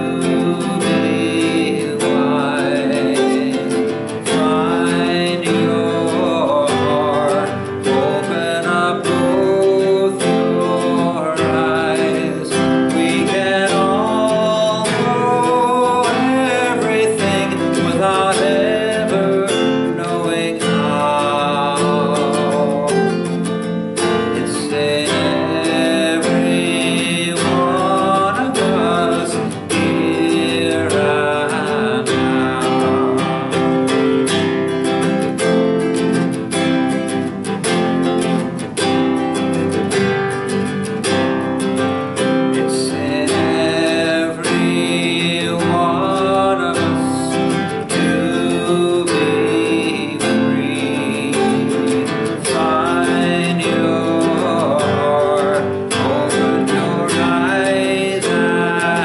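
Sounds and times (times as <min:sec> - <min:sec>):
man singing: 0:00.0 - 0:59.0
strummed nylon-string guitar: 0:00.0 - 0:59.0.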